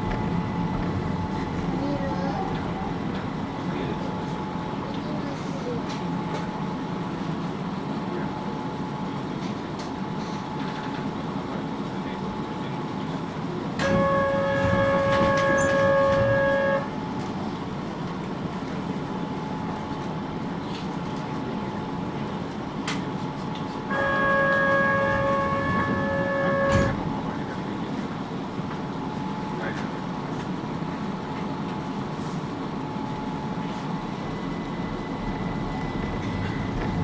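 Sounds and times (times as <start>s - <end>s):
faint passenger voices: 0.0s - 34.6s
train cabin running noise: 0.0s - 37.0s
loud electronic tone: 13.8s - 16.9s, 23.9s - 27.1s.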